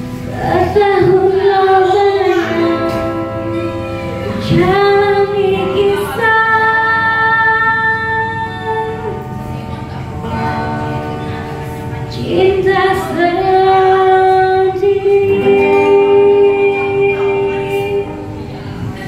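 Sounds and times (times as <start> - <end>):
woman singing pop ballad: 0.3 - 9.2, 12.1 - 18.3.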